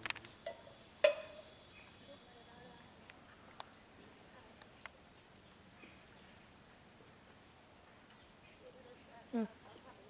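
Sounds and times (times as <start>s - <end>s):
bird chirps: 0.3s - 2.9s, 3.6s - 6.4s.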